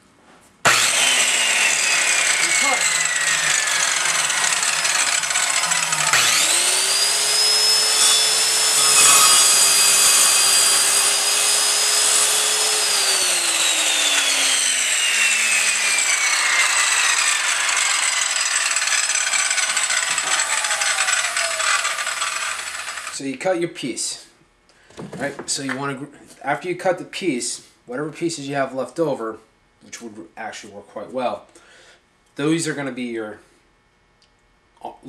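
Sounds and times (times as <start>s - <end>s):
circular saw cutting wood: 0.6s - 23.2s
saw blade winding down whine: 0.7s - 23.2s.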